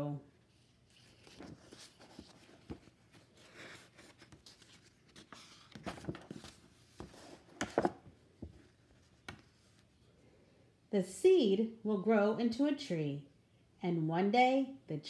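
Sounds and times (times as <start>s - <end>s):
paper page rustling: 0.5s - 9.9s.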